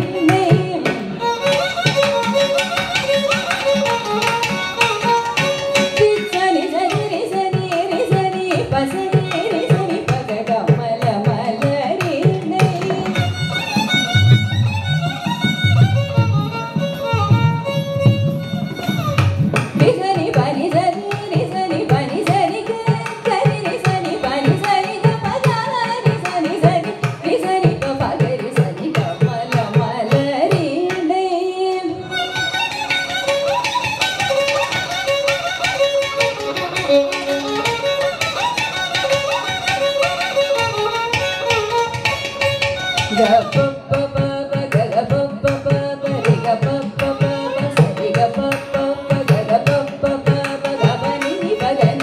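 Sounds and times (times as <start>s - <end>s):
woman singing: 0.0s - 1.3s, 5.4s - 13.3s, 19.6s - 32.1s, 42.4s - 52.0s
violin: 0.0s - 52.0s.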